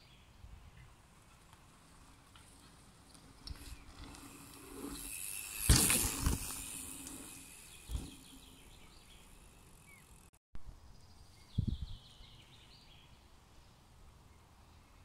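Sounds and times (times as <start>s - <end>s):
tyres hissing on dirt: 3.6s - 10.3s.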